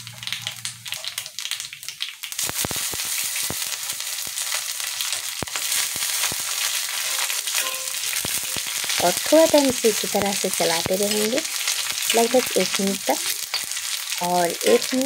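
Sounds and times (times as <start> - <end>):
seeds sizzling in hot oil: 0.0 - 15.0.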